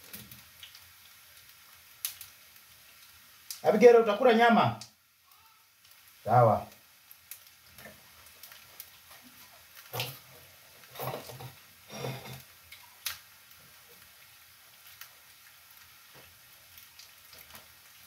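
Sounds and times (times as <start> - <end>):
meat sizzling in a frying pan: 0.0 - 18.0.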